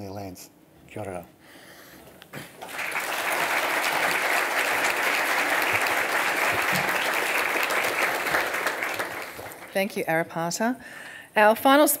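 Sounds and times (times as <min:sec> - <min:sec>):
audience applauding: 0:02.5 - 0:09.8.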